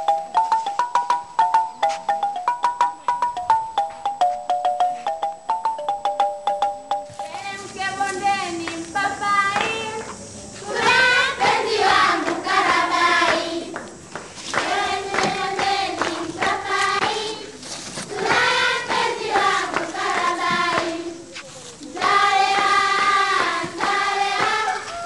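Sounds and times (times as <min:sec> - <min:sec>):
group of voices singing: 0:09.5 - 0:25.0.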